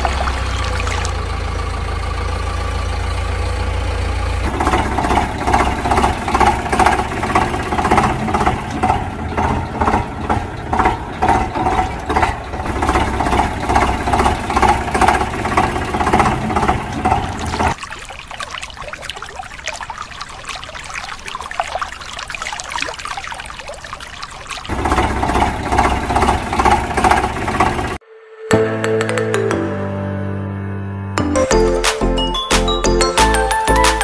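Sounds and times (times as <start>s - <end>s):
engine humming and chugging: 0.0s - 22.2s, 23.3s - 28.0s.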